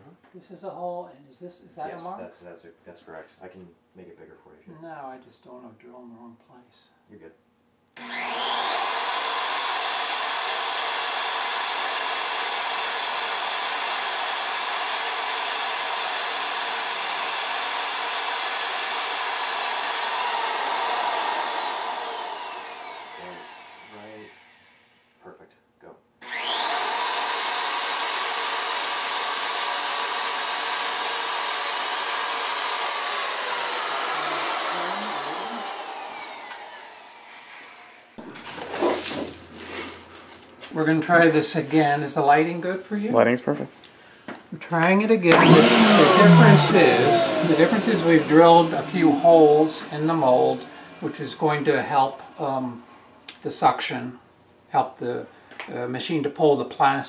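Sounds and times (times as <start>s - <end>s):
electric drill boring: 8.0s - 25.1s, 26.2s - 39.4s, 45.3s - 52.8s.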